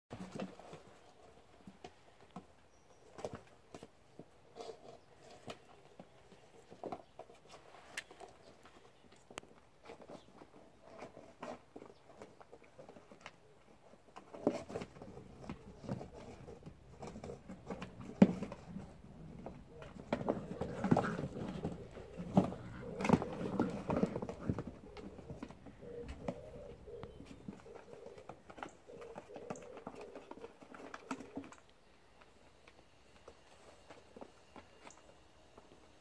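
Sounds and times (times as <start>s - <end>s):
puppies scrabbling in cardboard box: 14.0s - 26.4s.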